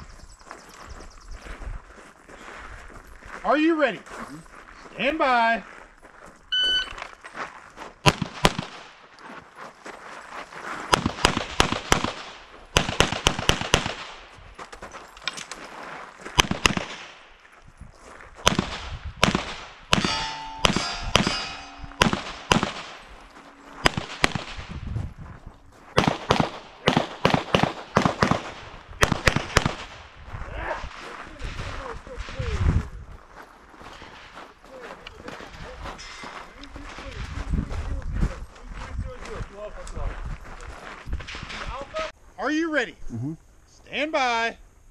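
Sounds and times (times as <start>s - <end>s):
pitched ringing tone: 6.5s - 7.0s, 20.0s - 26.0s
pistol shots: 8.0s - 8.9s, 10.9s - 14.2s, 16.4s - 17.2s, 18.5s - 24.8s, 25.9s - 30.0s.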